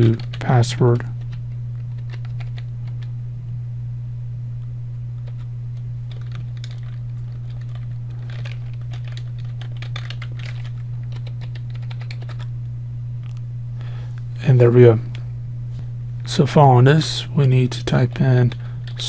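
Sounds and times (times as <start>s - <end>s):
keyboard typing: 0.0s - 0.6s, 1.2s - 3.1s, 6.1s - 12.5s
low hum: 0.0s - 19.0s.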